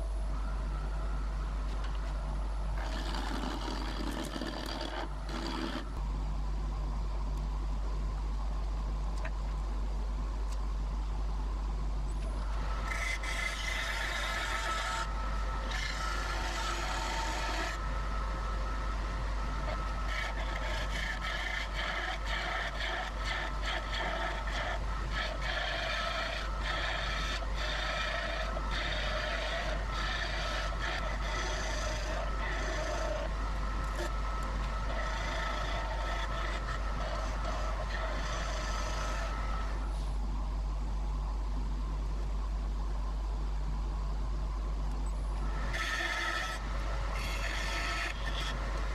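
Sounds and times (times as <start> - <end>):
lathe machinery humming: 12.2 - 39.9, 45.3 - 48.9
lathe tool shaving wood: 19.8 - 33.2, 45.6 - 46.6.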